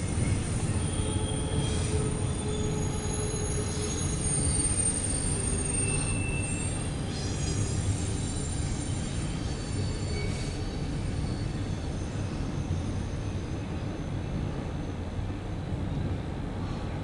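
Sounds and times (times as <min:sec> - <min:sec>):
high wheel squeals: 0:00.0 - 0:13.6
train wheels rumbling on rail: 0:00.0 - 0:17.0.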